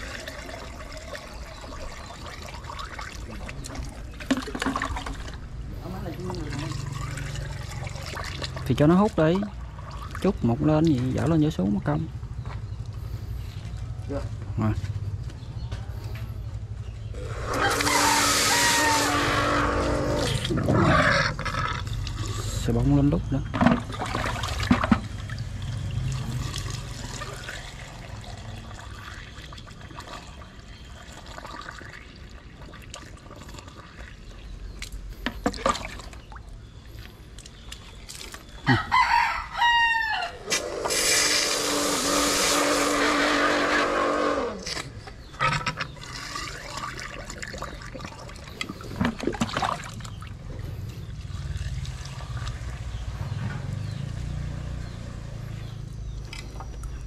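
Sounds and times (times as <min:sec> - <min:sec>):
rooster crowing: 0:17.2 - 0:20.2, 0:38.6 - 0:40.9.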